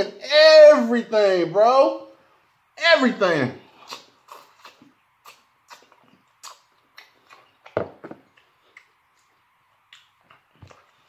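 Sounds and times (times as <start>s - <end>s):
wet chewing mouth sounds: 3.8s - 9.3s.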